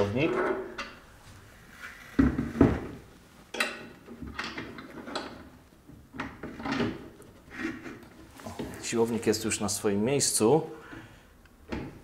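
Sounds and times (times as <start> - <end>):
rubbing and rustling: 1.1 - 9.6.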